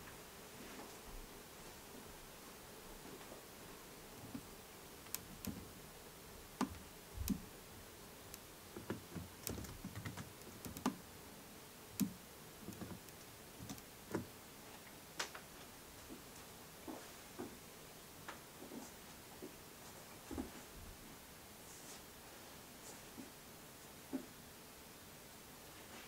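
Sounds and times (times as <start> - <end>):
light clicks and soft knocks: 4.2 - 5.7, 6.6 - 7.5, 8.3 - 11.0, 11.9 - 15.5.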